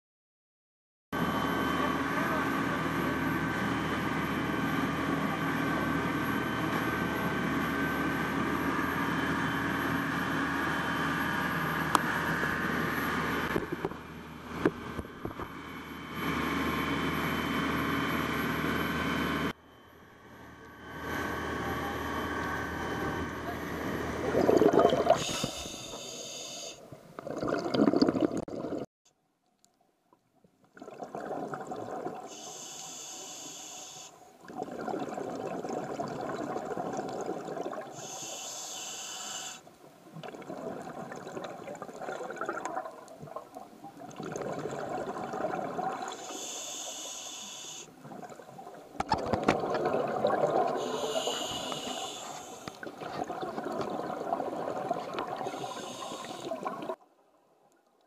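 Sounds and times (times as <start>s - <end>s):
water churning: 24.2s - 25.6s, 27.0s - 28.9s, 30.7s - 32.4s, 34.4s - 38.2s, 40.1s - 47.1s, 47.9s - 57.0s
bubbling exhaled air: 24.2s - 28.9s, 30.7s - 33.8s, 34.4s - 39.6s, 40.2s - 57.0s
scuba breathing through regulator: 25.1s - 26.8s, 32.3s - 34.2s, 38.0s - 39.6s, 46.1s - 47.9s, 50.7s - 52.8s, 55.4s - 56.8s.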